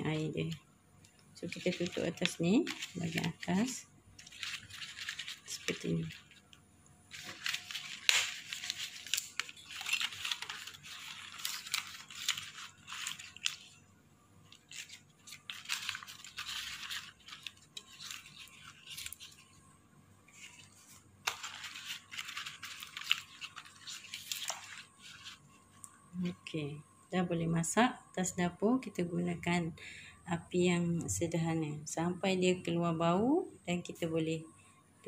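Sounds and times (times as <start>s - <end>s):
leaves rustling and crinkling: 1.4s - 19.6s, 20.3s - 26.4s.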